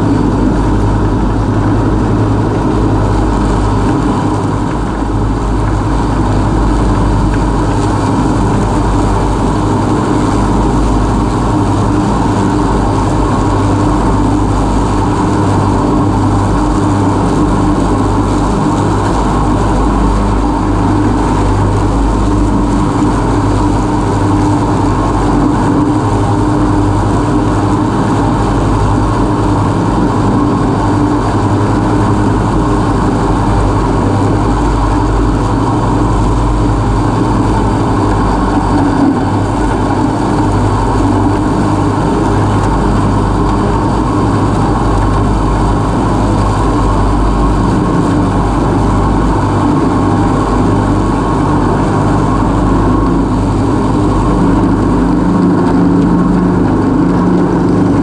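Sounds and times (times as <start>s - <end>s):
ride-on mower running: 0.0s - 58.0s.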